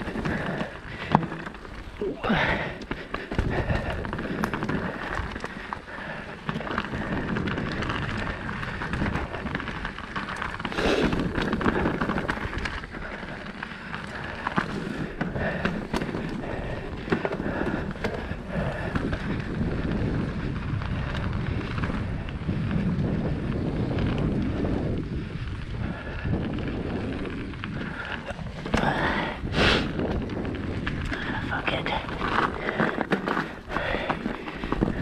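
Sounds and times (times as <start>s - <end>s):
bike rattling and knocking: 0.0s - 35.0s
tyres rushing on dirt: 0.0s - 35.0s
wind on microphone: 14.1s - 35.0s.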